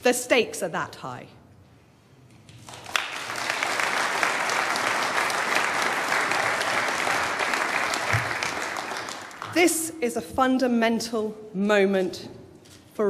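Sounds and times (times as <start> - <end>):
audience applauding: 2.6 - 9.6.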